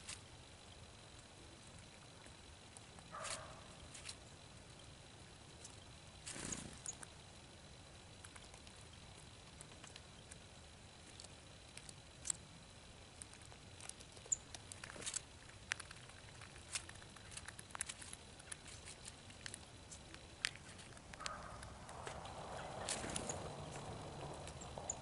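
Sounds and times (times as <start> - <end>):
squirrel rustling in birdseed: 0.0 - 25.0.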